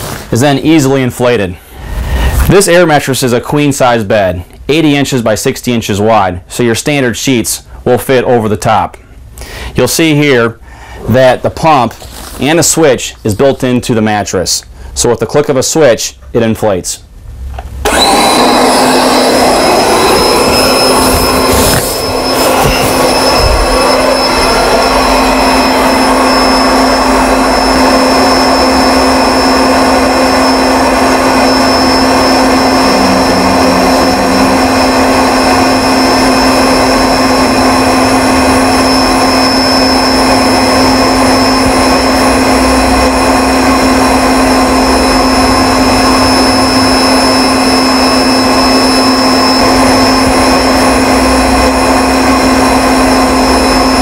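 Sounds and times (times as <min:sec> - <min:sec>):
electric air pump whirring: 0:17.6 - 0:54.0.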